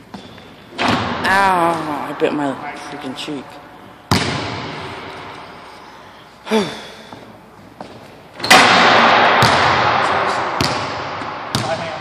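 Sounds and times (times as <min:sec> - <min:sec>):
basketball banging backboard: 0:00.8 - 0:01.9, 0:04.1 - 0:04.9, 0:08.4 - 0:12.0.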